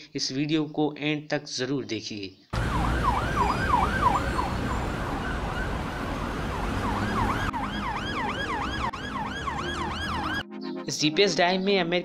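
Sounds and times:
siren yelping: 2.6 - 10.6.

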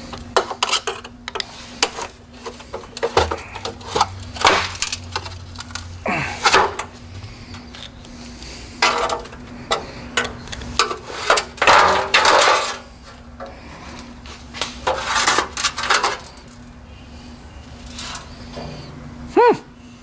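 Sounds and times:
faint steady hum: 0.0 - 20.0
tools and metal parts clattering: 0.4 - 8.0, 8.8 - 13.5, 14.8 - 16.7.

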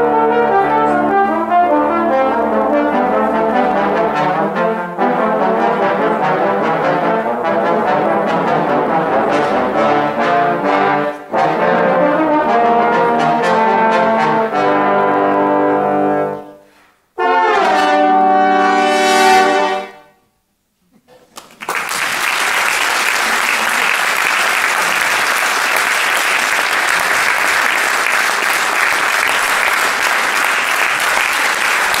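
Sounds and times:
trombones playing a held chord: 0.0 - 20.1
audience applause: 21.3 - 32.0.

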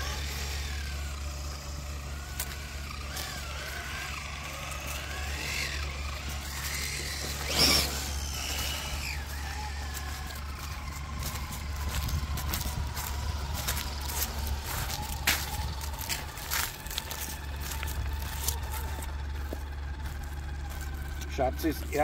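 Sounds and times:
electric motor whining: 0.0 - 22.0
loud scrape: 6.6 - 9.4.

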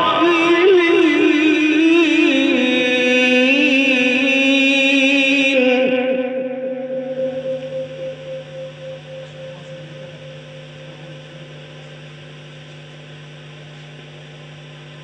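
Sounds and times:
echo of sung chant: 0.0 - 11.8
steady low hum: 0.0 - 15.0.

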